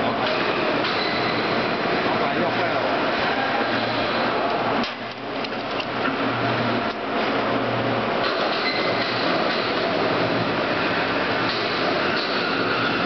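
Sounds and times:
wire spooling machine clatter: 8.2s - 13.0s.

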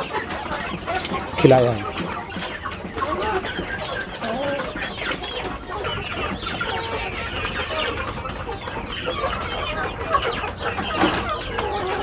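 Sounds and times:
hens clucking: 0.0s - 12.0s.

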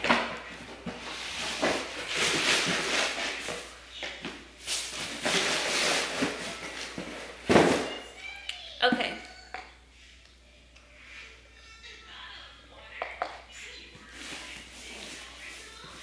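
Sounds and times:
packing paper rustling: 4.6s - 7.8s.

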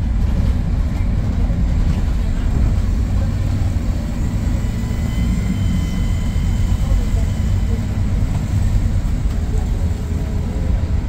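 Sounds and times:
bus engine and road rumble: 0.0s - 11.0s.

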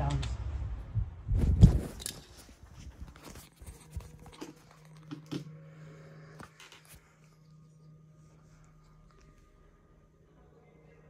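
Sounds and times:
faint steady hum: 0.0s - 11.0s
recording device handling noise: 1.3s - 7.9s.

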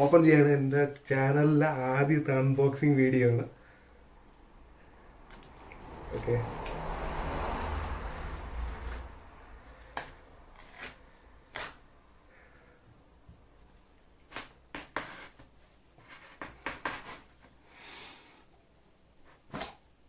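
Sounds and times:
scratchy rasp: 10.6s - 11.8s, 14.3s - 17.5s.

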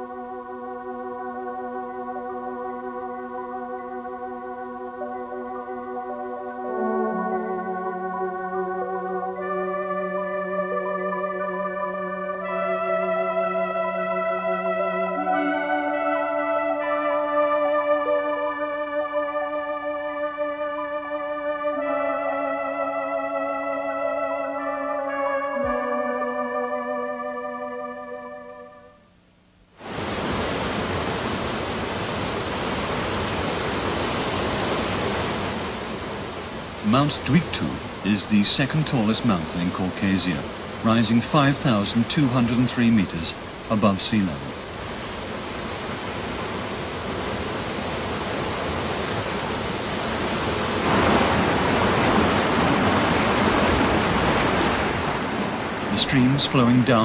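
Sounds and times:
keyboard music: 0.0s - 29.2s, 36.8s - 44.6s, 50.8s - 57.0s
river rapids churning: 29.8s - 57.0s
waterfall rushing: 29.8s - 57.0s.

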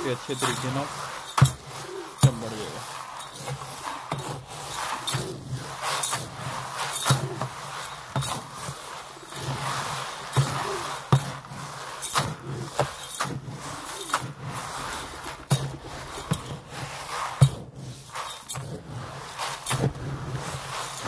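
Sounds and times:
seeds rustling and pattering: 0.0s - 21.0s.

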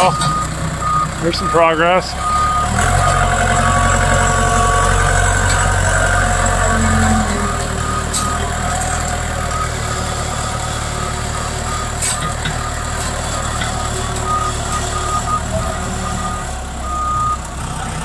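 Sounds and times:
backhoe engine under load: 0.0s - 18.0s
log dragging: 2.8s - 9.2s.

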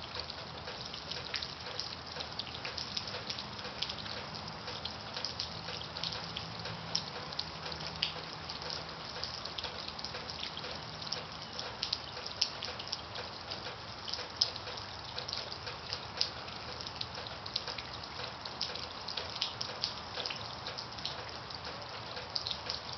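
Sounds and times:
water dripping: 0.0s - 22.9s.

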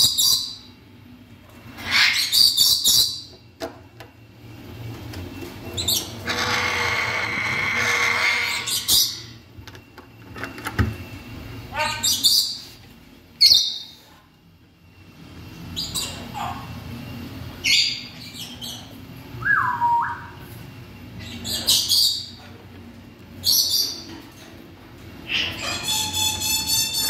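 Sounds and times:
parrot squawks: 1.7s - 3.2s, 5.9s - 9.3s, 11.7s - 12.6s, 25.2s - 27.0s.

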